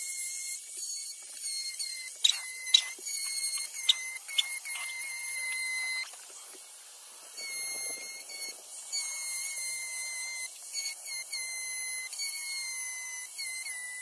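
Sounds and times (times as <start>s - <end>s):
power carving tool whining: 0.0s - 6.7s, 7.3s - 14.0s.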